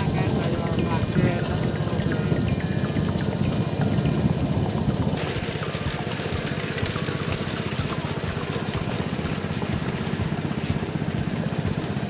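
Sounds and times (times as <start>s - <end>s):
small engine running: 0.0s - 12.0s.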